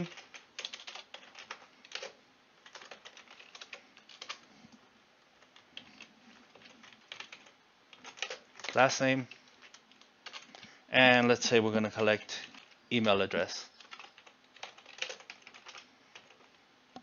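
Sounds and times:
faint keyboard typing: 0:00.0 - 0:10.8, 0:11.9 - 0:17.0.

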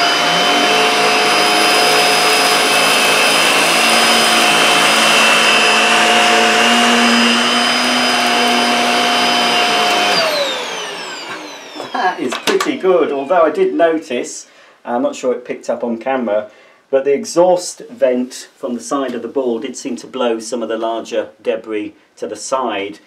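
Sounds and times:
vacuum motor winding down: 0:00.0 - 0:13.5
vacuum cleaner running: 0:00.0 - 0:13.7.

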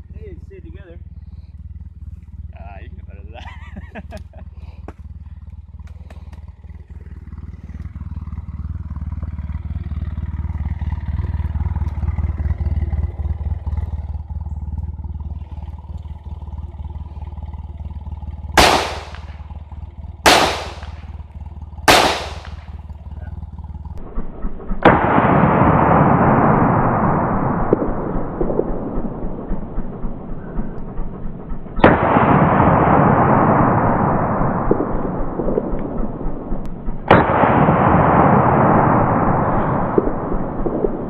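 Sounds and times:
steady low rumble: 0:00.0 - 0:41.0
gunshots: 0:18.6 - 0:19.4, 0:20.2 - 0:21.2, 0:21.9 - 0:22.8, 0:24.0 - 0:30.6, 0:31.8 - 0:41.0
loud steady rushing noise: 0:18.6 - 0:19.4, 0:20.3 - 0:21.1, 0:21.9 - 0:22.8.

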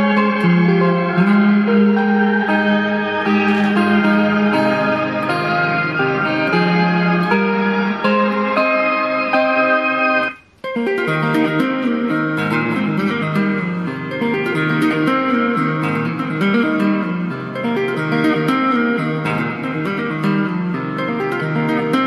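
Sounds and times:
electric guitar with reverb: 0:00.0 - 0:22.0.

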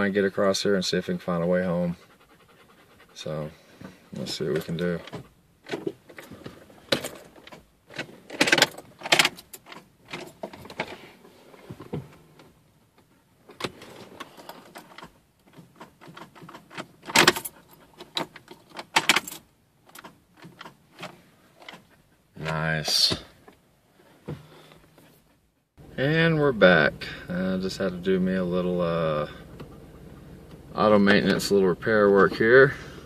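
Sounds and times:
phone handling clicks and rattles: 0:03.8 - 0:11.0, 0:11.8 - 0:23.6.

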